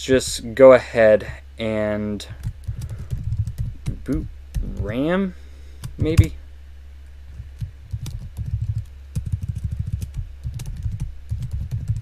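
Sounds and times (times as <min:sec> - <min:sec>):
low hum: 0:00.0 - 0:12.0
keyboard typing: 0:02.4 - 0:05.0, 0:05.9 - 0:06.3, 0:07.4 - 0:12.0.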